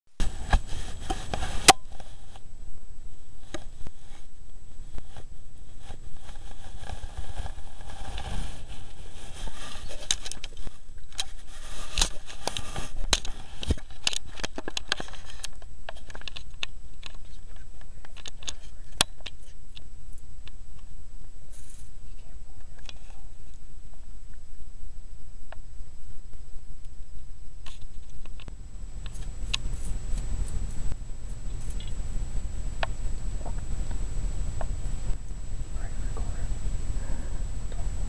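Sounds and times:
animal scratching and rustling: 0.2s - 2.4s, 3.4s - 19.6s, 29.0s - 38.0s.

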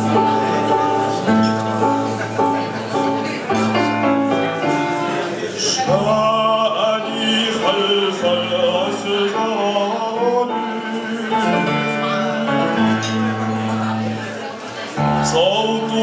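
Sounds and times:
instrumental accompaniment: 0.0s - 16.0s
man singing: 4.6s - 13.2s, 15.0s - 16.0s.

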